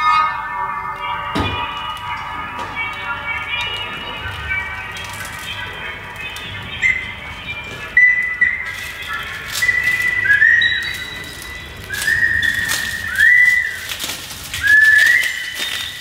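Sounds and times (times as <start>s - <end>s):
high whistle-like notes: 0.0s - 5.6s, 6.4s - 16.0s
sharp crackling clicks: 7.7s - 16.0s.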